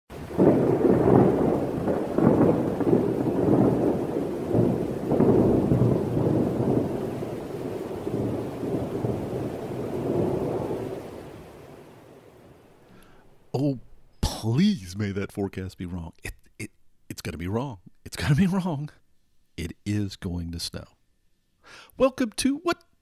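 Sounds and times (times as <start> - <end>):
thunder rumbling: 0.1 - 12.8
rain: 0.1 - 16.1.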